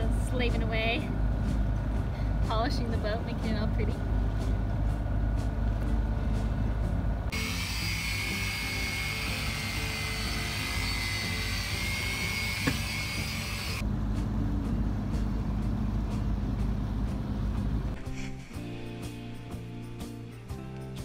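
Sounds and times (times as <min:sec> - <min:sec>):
electric polisher whining: 0:07.3 - 0:13.8.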